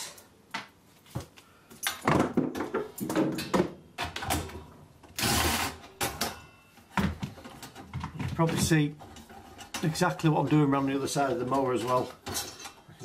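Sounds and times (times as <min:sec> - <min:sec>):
metal tools clattering: 0:07.4 - 0:13.0.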